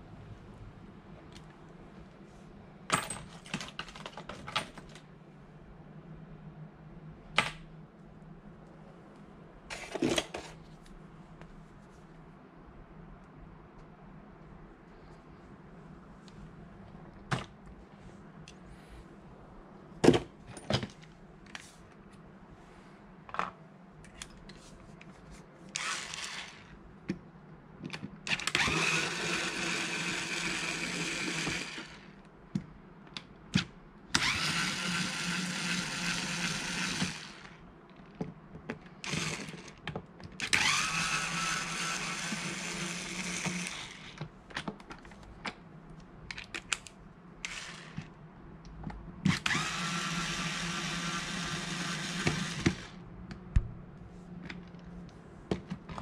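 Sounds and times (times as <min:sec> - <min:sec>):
electric screwdriver whining: 0:25.8 - 0:26.7, 0:28.3 - 0:32.0, 0:34.2 - 0:37.6, 0:39.0 - 0:39.7, 0:40.4 - 0:44.2, 0:47.5 - 0:48.0, 0:49.3 - 0:53.0.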